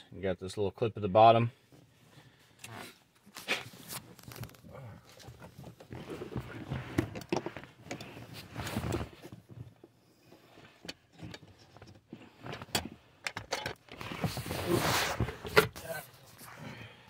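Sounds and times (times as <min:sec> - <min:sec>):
plastic scraping and rubbing: 0:02.8 - 0:09.6, 0:13.8 - 0:16.6.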